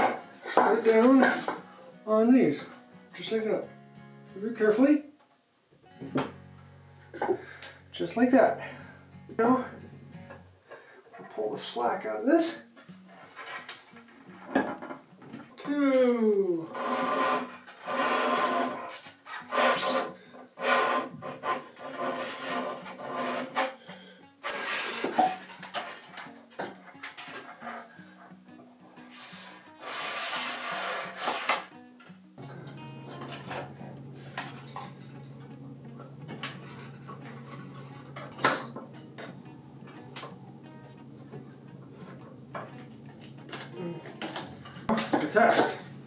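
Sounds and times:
cable rasping against wood: 16.7 - 23.8, 29.2 - 31.6.

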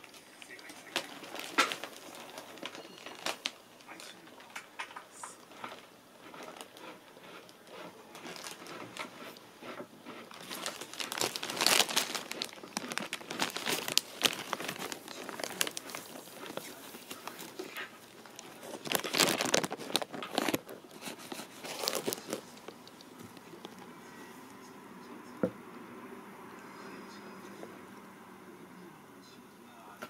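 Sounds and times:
plastic bag crinkling: 0.0 - 23.9.

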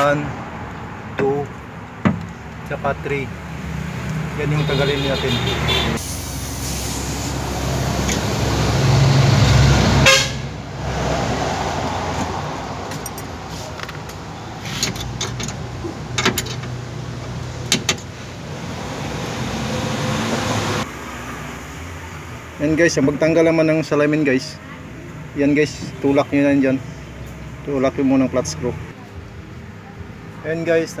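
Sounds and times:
loud low vehicle-like rumble: 3.2 - 17.6.

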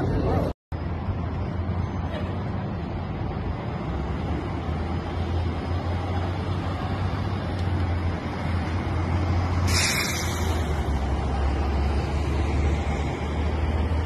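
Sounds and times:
bus passing: 0.0 - 14.0
cars passing: 0.0 - 14.0
low traffic rumble: 0.0 - 14.0
burst of hiss: 9.6 - 10.8.

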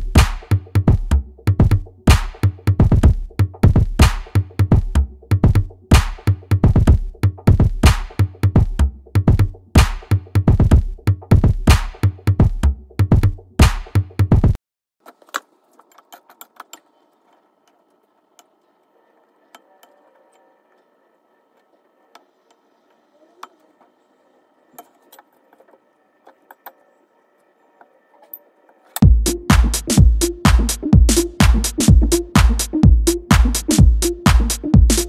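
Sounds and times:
background music: 29.0 - 35.0.

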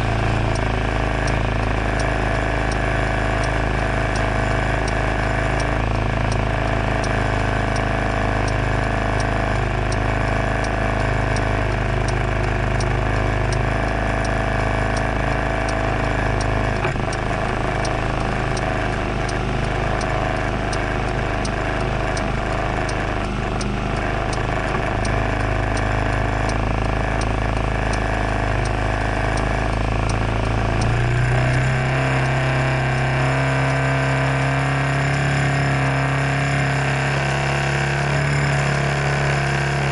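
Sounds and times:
scooter engine idling: 0.0 - 31.0
light regular ticking: 0.0 - 39.9.

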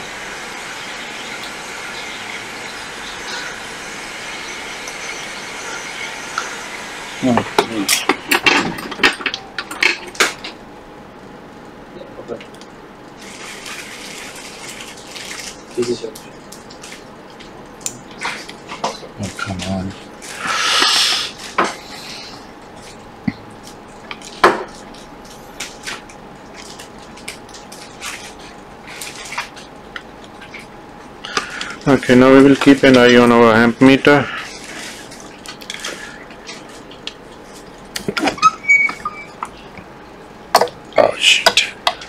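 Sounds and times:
steady hiss: 0.0 - 9.2, 19.2 - 23.0.

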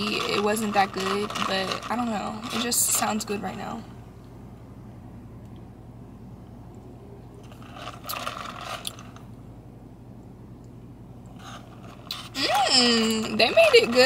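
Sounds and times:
slurping through a straw: 0.0 - 3.2, 7.5 - 9.2, 11.3 - 14.0
low steady hum: 0.0 - 14.0.

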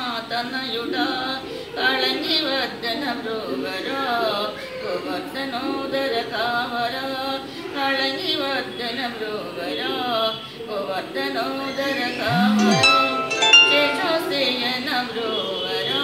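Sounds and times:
woman singing devotional song: 0.0 - 12.3.

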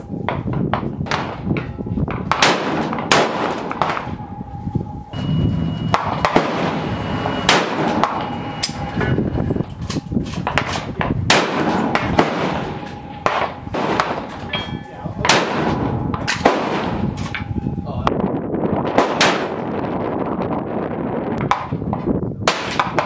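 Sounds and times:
gunshots: 2.3 - 4.1, 5.9 - 8.4, 10.4 - 14.5, 15.2 - 17.2, 18.9 - 19.7, 22.5 - 23.0.

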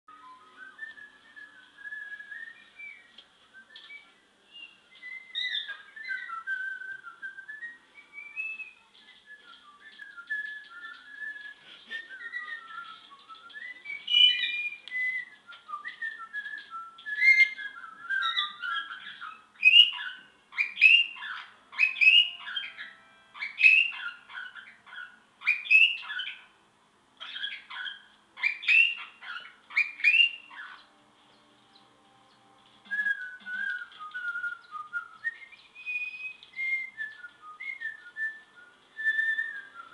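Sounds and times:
parakeet whistling: 0.1 - 26.5, 27.2 - 31.0, 31.7 - 39.9
parakeet chirps: 3.8 - 6.8, 8.0 - 26.6, 27.2 - 38.1.

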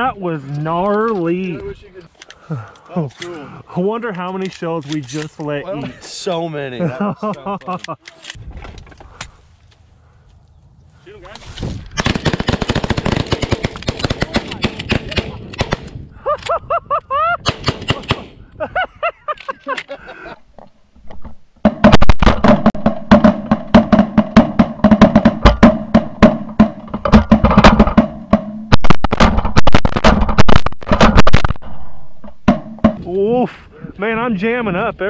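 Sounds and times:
rapid shotgun fire: 12.0 - 15.9, 21.8 - 26.4, 28.7 - 31.6.

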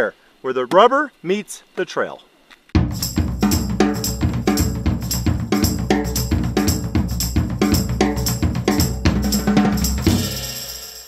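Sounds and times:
bass line: 2.8 - 10.4
driving drum beat: 2.8 - 11.0.

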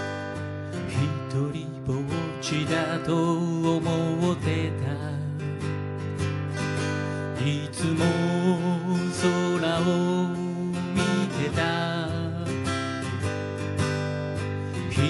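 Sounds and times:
acoustic guitar strumming: 0.0 - 15.0
man singing: 0.8 - 5.7, 7.2 - 13.0, 14.7 - 15.0.

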